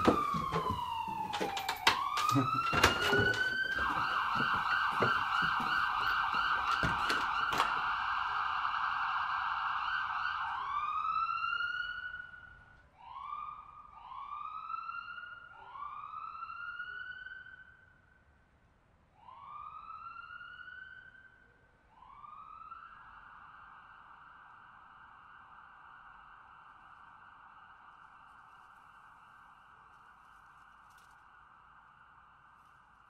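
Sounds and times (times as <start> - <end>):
police siren swooping: 0.0 - 17.6.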